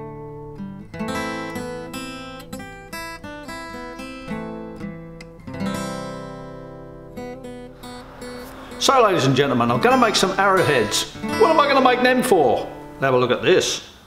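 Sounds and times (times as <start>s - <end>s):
acoustic guitar plucking: 0.0s - 13.2s.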